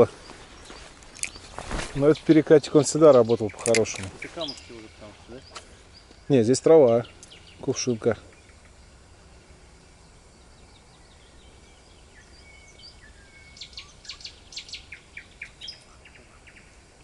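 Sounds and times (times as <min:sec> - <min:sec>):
faint outdoor background: 0:00.0 - 0:17.0
songbird chirping: 0:00.0 - 0:17.0.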